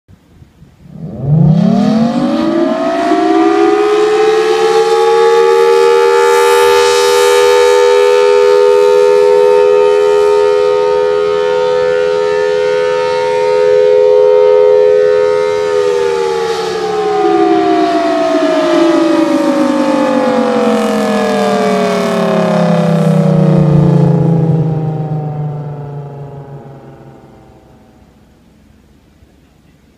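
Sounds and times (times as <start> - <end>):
warning siren wailing: 0.9 - 28.9.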